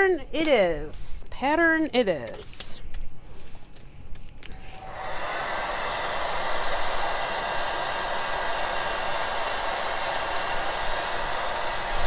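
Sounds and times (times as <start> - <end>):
hair dryer blowing: 4.4 - 12.0.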